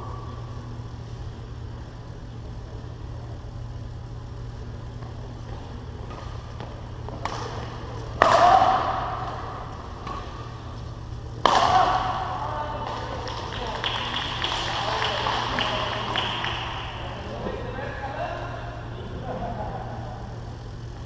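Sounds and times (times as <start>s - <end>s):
steady low hum: 0.0s - 21.0s
rackets hitting shuttlecock: 5.0s - 17.3s.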